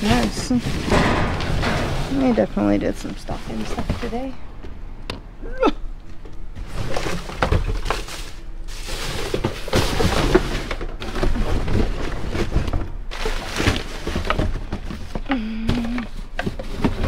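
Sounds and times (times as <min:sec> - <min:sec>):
rummaging rustling: 0:00.0 - 0:04.5, 0:06.1 - 0:17.0
objects thunking and knocking: 0:00.0 - 0:05.3, 0:06.0 - 0:17.0.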